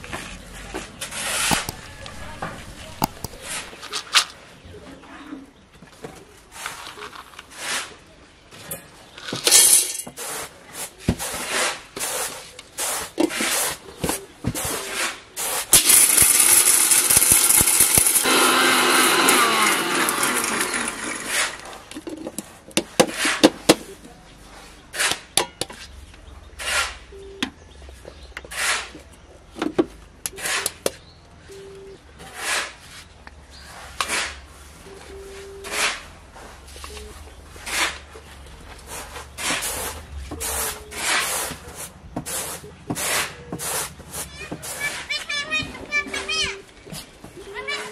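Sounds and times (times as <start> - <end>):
steel jar and lid clatter: 8.7 - 10.2, 15.7 - 18.3
mixer grinder running: 15.8 - 22.0.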